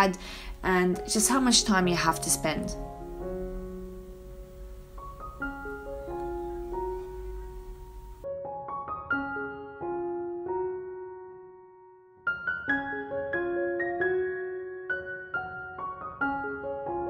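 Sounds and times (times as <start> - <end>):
low hum and hiss: 0.0 - 8.2
soft piano music: 0.0 - 17.0.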